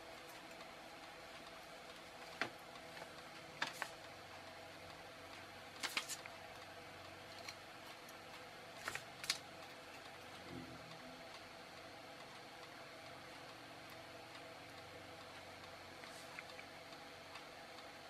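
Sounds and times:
faint steady hum: 0:00.0 - 0:18.0.

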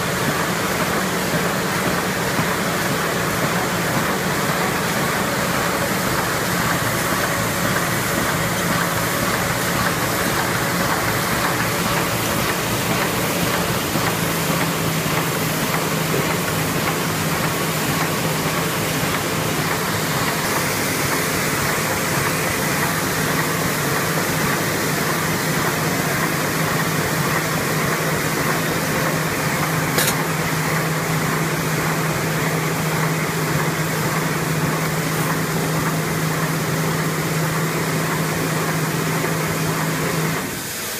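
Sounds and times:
envelope machine mechanical din: 0:00.0 - 0:40.6
sharp click: 0:30.0 - 0:30.2.

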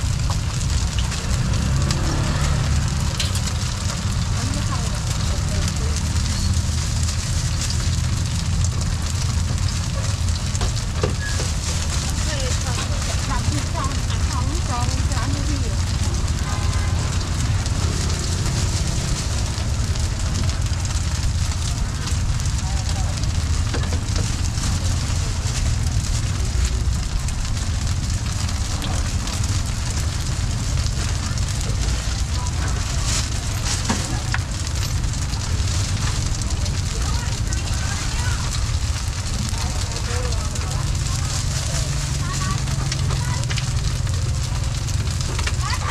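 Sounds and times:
food sizzling in oil: 0:00.0 - 0:45.9
low rumble: 0:00.0 - 0:45.9.

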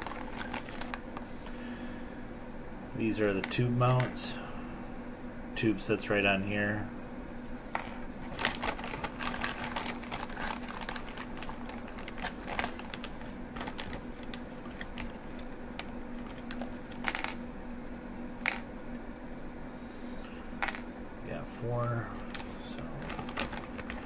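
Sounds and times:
plastic bag crinkling: 0:00.0 - 0:01.6, 0:07.8 - 0:17.4, 0:22.2 - 0:24.0
plastic parts clicking and rattling: 0:07.8 - 0:15.2, 0:15.8 - 0:17.4, 0:22.3 - 0:24.0.

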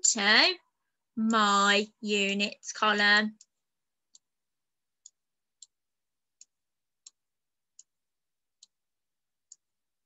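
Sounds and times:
computer mouse clicking: 0:03.3 - 0:04.3, 0:05.0 - 0:08.0, 0:09.4 - 0:09.8.

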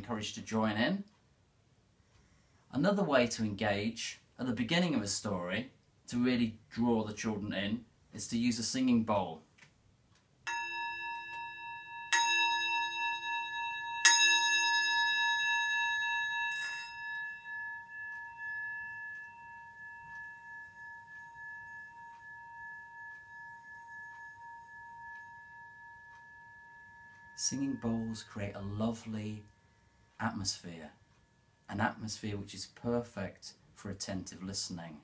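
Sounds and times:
singing bowl struck ringing: 0:10.5 - 0:31.7
singing bowl rim humming: 0:10.5 - 0:31.8.

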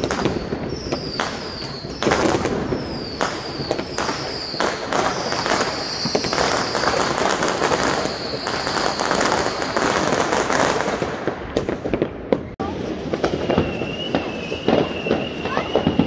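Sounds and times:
fireworks bangs and crackles: 0:00.0 - 0:16.0
high whistling tone: 0:13.2 - 0:16.0.

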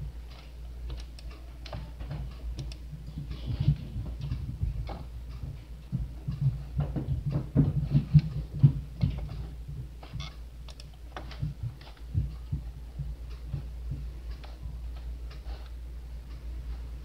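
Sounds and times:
steady low hum: 0:00.0 - 0:17.0
computer mouse clicking: 0:02.5 - 0:02.8, 0:10.2 - 0:12.1.

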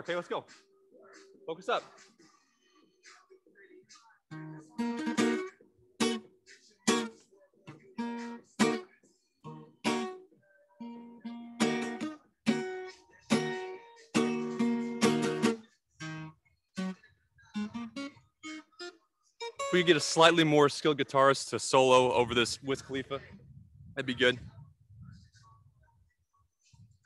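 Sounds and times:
acoustic guitar strummed chords: 0:04.3 - 0:20.6.

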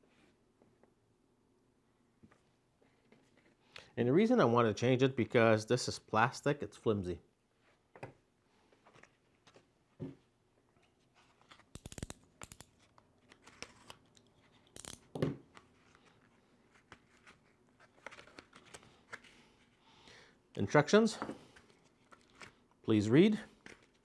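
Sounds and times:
blister pack being torn open: 0:11.6 - 0:15.1.

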